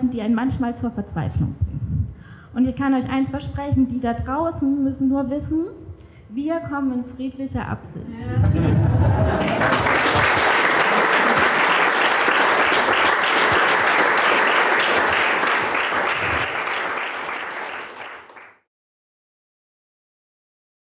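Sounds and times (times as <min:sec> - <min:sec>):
audience applauding: 0:08.4 - 0:18.6.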